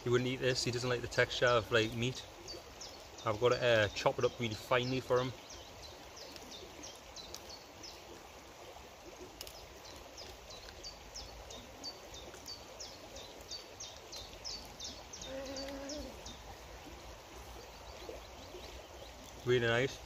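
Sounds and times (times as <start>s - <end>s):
outdoor background noise: 0.0s - 20.0s
small bird chirping: 9.5s - 16.6s.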